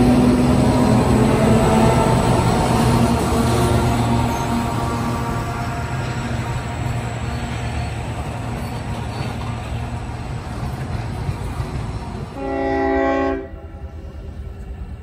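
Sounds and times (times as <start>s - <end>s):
train rumbling: 0.0s - 15.0s
train horn blast: 12.4s - 13.9s.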